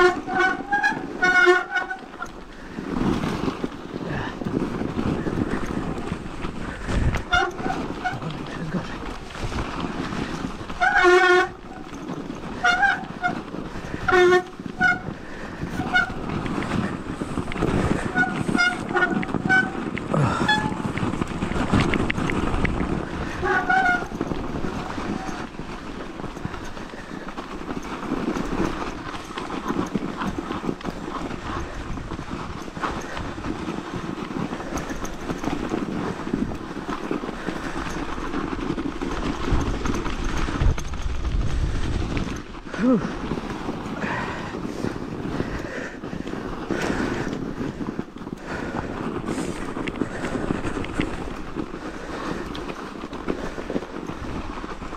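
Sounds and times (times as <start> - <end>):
bike tyres running through snow: 0.0 - 54.9
wind noise on microphone: 0.0 - 54.9
bike brakes squealing: 23.2 - 25.6.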